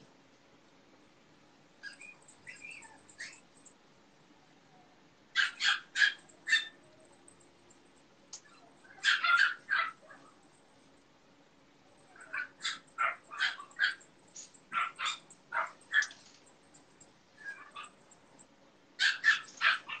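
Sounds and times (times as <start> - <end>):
dog barking: 5.4 - 6.8, 8.4 - 10.4, 12.0 - 16.2, 17.4 - 18.0, 19.0 - 20.0.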